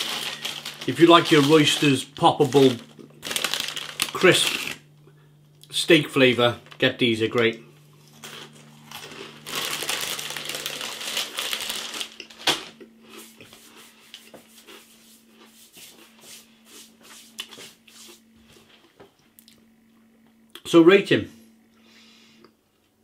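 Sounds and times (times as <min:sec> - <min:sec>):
plastic bag crinkling: 0:00.0 - 0:04.8, 0:08.1 - 0:12.8.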